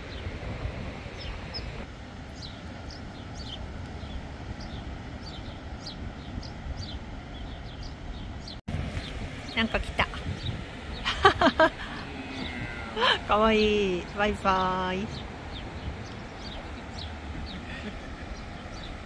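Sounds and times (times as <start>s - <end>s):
small birds chirping: 1.1s - 19.0s.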